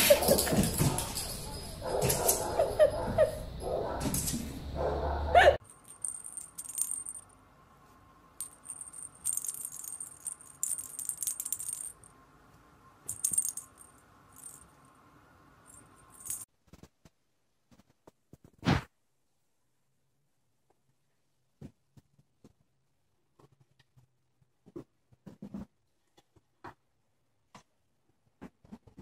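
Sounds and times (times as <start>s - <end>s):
plastic toy ball rattling: 5.7s - 7.2s, 8.4s - 12.1s, 13.1s - 14.6s.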